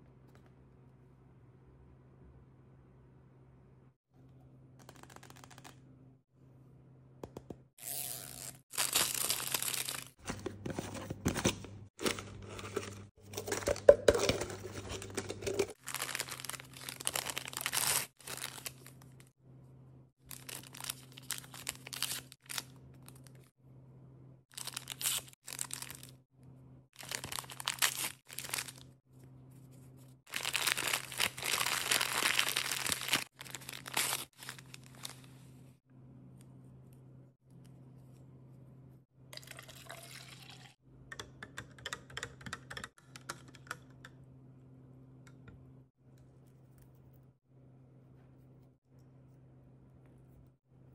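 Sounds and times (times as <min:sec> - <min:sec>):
plastic wrap crinkling: 0:08.7 - 0:10.2, 0:12.0 - 0:19.2, 0:24.6 - 0:26.1, 0:27.0 - 0:28.9, 0:30.3 - 0:35.3.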